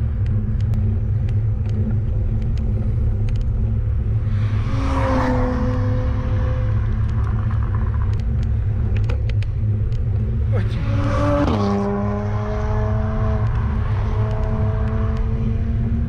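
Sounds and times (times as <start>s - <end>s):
wind and road noise: 0.0s - 16.0s
car passing: 4.2s - 9.2s, 10.3s - 16.0s.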